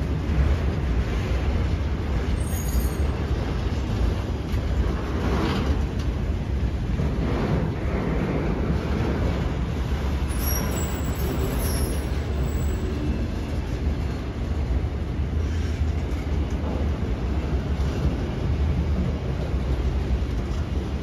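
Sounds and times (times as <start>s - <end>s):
freight train wheels rumbling on rail: 0.0s - 21.0s.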